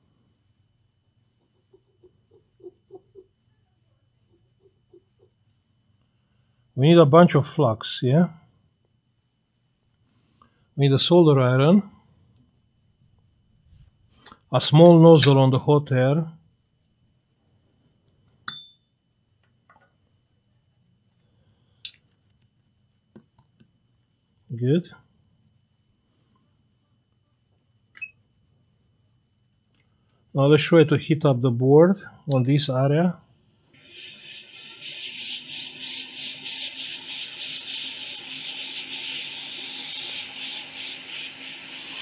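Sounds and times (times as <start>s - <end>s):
faint steady hum: 0.0s - 42.0s
hot air blower hissing: 33.8s - 42.0s.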